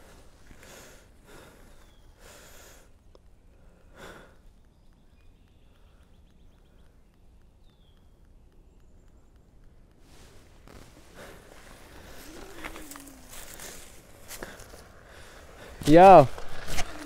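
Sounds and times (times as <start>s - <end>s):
person breathing heavily: 0.0s - 4.6s, 10.1s - 15.9s.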